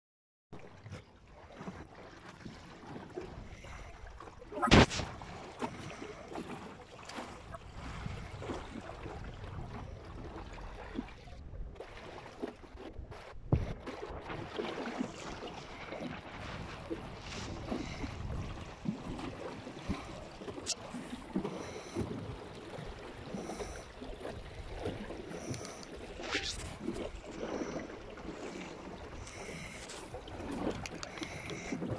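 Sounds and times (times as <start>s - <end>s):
water lapping against boat hull: 0.6s - 31.9s
wind on microphone: 7.4s - 10.5s, 15.0s - 20.7s.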